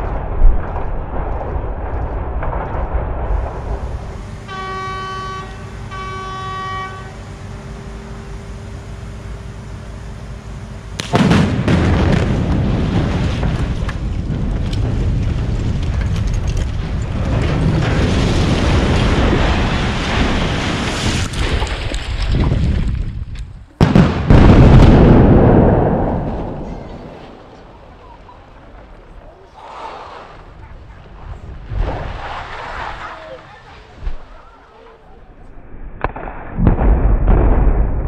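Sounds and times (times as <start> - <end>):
rushing debris and dust: 0.0 - 4.6, 10.9 - 35.4
demolition blast: 0.0 - 6.1, 10.9 - 34.6, 35.6 - 38.0
warning horn: 4.2 - 11.0.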